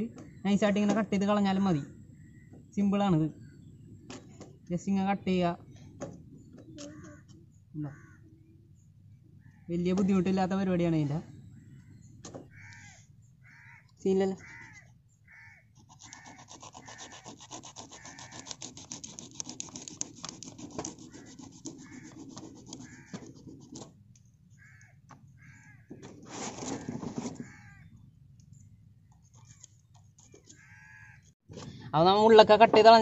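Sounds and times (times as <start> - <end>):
crows cawing: 6.8 - 8.4, 11.8 - 18.7, 21.0 - 23.5, 24.5 - 26.2, 26.8 - 28.0, 30.4 - 31.4
knife sawing through fish fins: 15.8 - 23.9.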